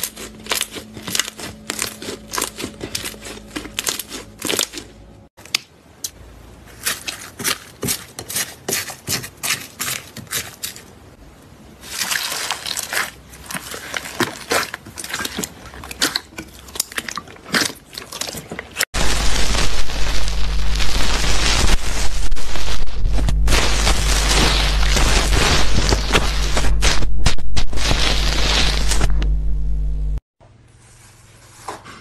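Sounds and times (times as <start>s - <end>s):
beaded slime crunching and squelching: 0.0s - 4.9s, 11.8s - 29.2s
slime popping and crackling: 11.8s - 29.1s.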